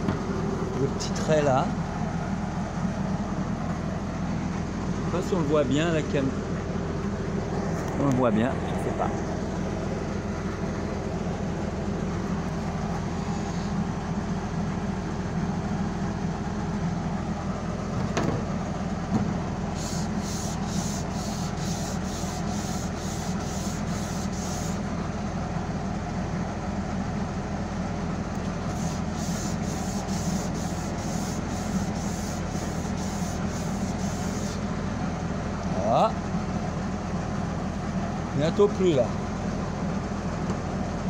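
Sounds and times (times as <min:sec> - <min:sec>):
steady low hum: 0:00.0 - 0:41.0
sanding block scraping: 0:19.8 - 0:24.8, 0:28.7 - 0:34.6.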